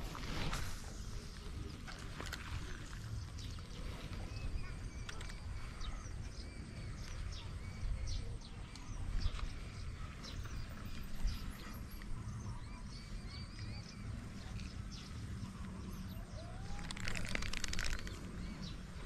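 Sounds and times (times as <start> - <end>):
small birds chirping: 0.0 - 19.0
rapid clicking: 16.7 - 18.5.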